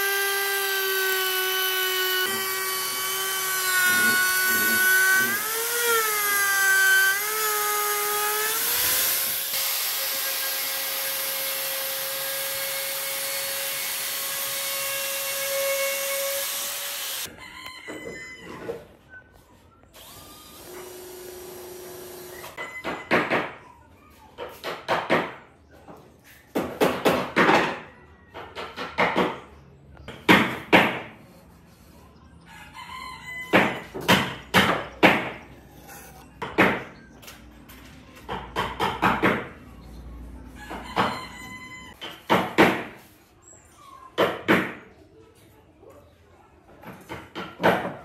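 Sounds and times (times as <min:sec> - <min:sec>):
wooden stick scraping board: 0:35.1 - 0:36.3.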